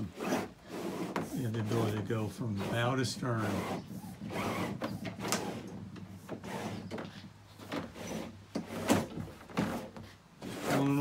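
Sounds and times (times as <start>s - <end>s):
rope sliding through pulleys: 0.0s - 11.0s.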